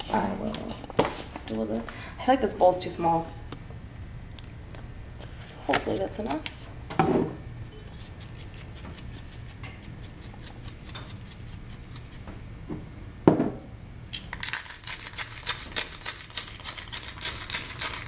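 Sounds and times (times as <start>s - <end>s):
seasoning shaker rattling: 7.8s - 12.2s, 13.6s - 18.0s.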